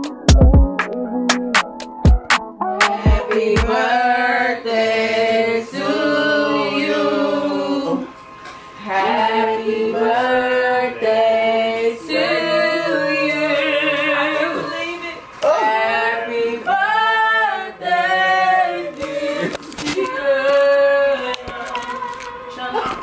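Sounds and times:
group singing unaccompanied: 2.6 - 8.2, 8.8 - 22.1.

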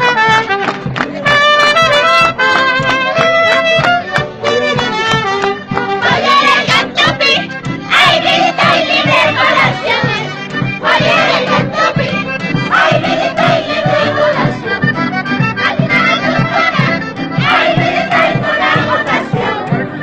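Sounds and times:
accordion music with steady beat: 0.0 - 20.0
group singing shouted phrases: 6.0 - 10.2, 12.7 - 14.7, 16.4 - 19.9.

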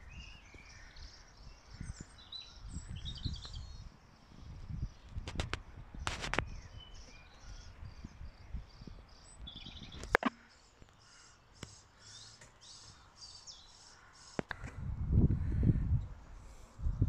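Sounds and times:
small bird chirping: 0.0 - 5.3, 6.0 - 14.6
sharp click: 10.0 - 10.4.

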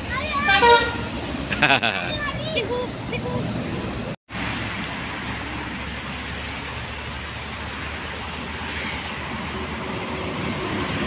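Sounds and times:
highway traffic rush: 0.0 - 11.0.

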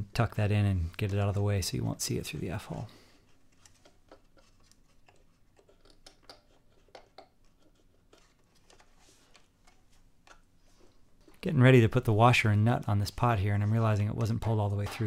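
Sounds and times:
small clicks and rustles: 3.2 - 11.4.

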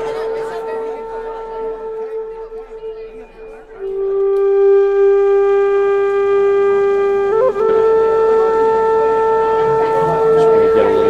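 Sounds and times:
wind instrument holding notes: 0.0 - 11.0.

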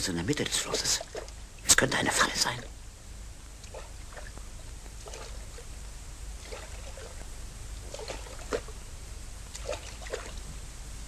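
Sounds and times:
water splashing against raft: 9.5 - 10.4.

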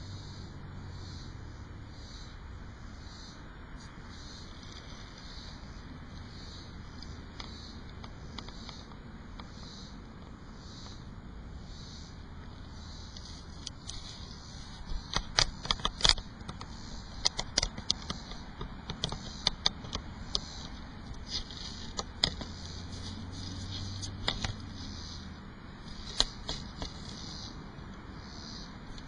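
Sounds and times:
cicadas and crickets chirping: 0.0 - 29.0
close clicks and crackles: 3.8 - 11.0, 13.1 - 28.1.

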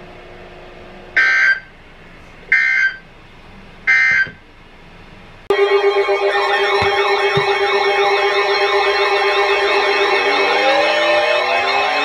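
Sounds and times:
music with siren-like tones: 5.5 - 12.0.

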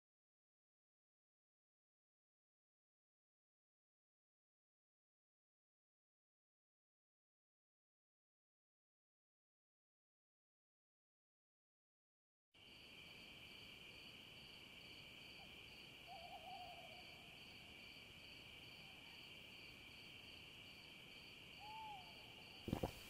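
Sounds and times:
insect trill: 12.6 - 23.0
hoot-like call: 15.4 - 17.4, 21.6 - 22.9.

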